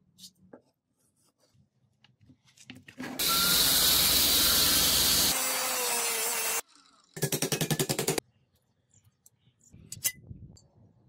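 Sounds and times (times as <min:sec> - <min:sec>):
belt grinder grinding wood: 0:03.2 - 0:06.8.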